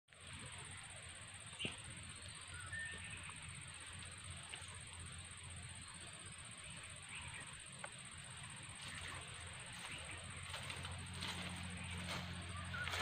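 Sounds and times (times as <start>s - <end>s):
bird-like chirps: 1.5s - 4.8s, 8.8s - 13.0s.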